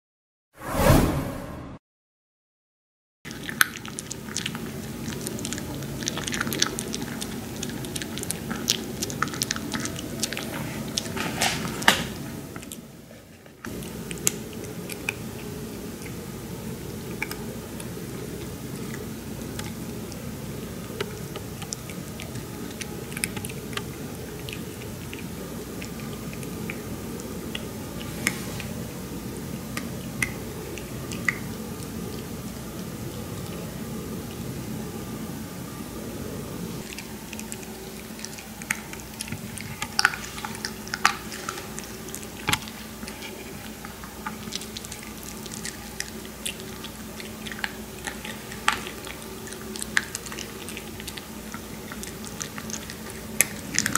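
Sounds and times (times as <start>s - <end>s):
dog crunching dry kibble: 3.3s - 12.8s, 13.7s - 16.3s, 16.9s - 28.8s, 36.8s - 53.9s
low background hum: 3.3s - 53.9s.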